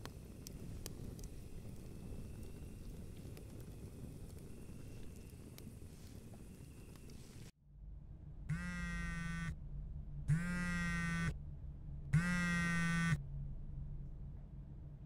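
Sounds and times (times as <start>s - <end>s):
faint hum: 0.0s - 15.0s
electric buzzing: 8.5s - 9.6s, 10.3s - 11.3s, 12.2s - 13.2s.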